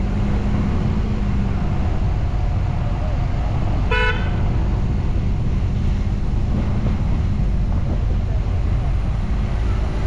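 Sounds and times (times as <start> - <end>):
engine rumble: 0.0 - 10.0
wind noise: 0.0 - 10.0
vehicle horn beep: 3.9 - 4.3.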